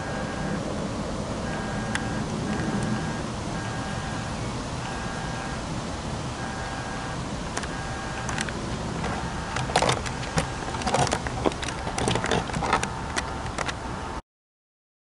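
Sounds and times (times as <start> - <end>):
steady low rumble: 0.0 - 14.2
camera handling clicks and knocks: 8.3 - 13.8.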